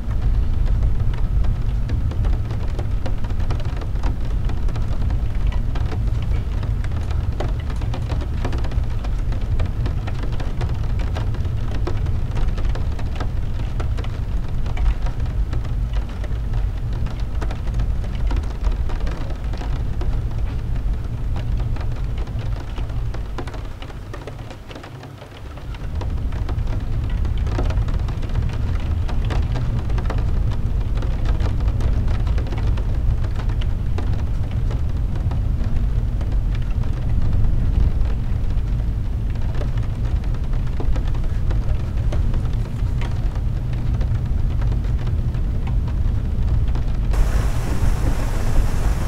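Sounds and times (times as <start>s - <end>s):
rain on car windshield: 0.0s - 49.0s
car rumbling on wet road: 44.0s - 49.0s.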